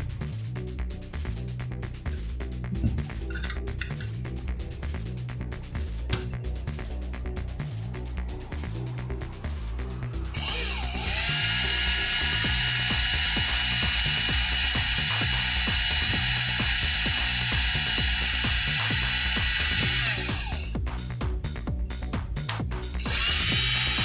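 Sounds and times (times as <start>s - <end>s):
drill motor whining: 10.2s - 20.8s, 23.0s - 24.0s.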